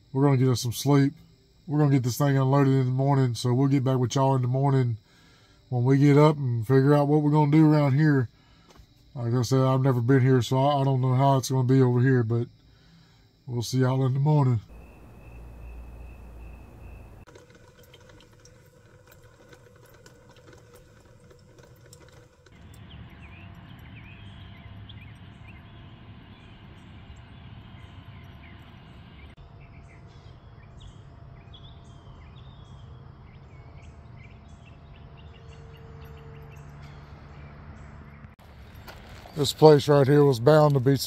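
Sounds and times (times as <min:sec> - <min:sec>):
high insect tone: 0:00.0 - 0:20.2
birds chirping: 0:13.7 - 0:17.9, 0:20.3 - 0:41.0
low steady rumble: 0:14.7 - 0:17.3, 0:18.7 - 0:29.4.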